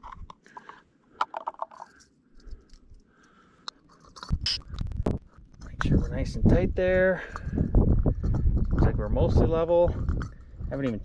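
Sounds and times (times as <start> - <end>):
small metal clicks and rattles: 0.0 - 6.2, 9.9 - 11.0.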